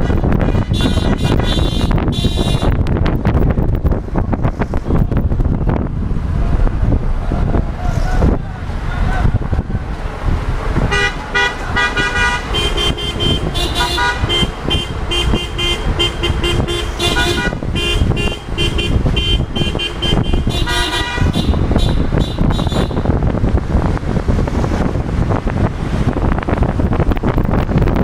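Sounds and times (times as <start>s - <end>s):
car horns honking: 0.0s - 2.8s, 10.8s - 23.2s
moving car rumble: 0.0s - 28.0s.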